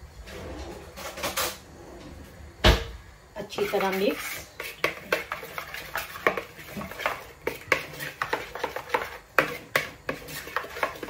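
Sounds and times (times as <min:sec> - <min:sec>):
spoon scraping mixing bowl: 0:03.4 - 0:11.0.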